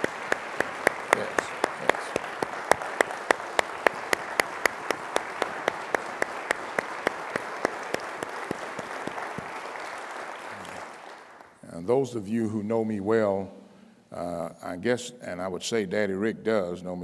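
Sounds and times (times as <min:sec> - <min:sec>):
close hands clapping sharply: 0:00.0 - 0:11.6
crowd applauding: 0:00.0 - 0:11.6.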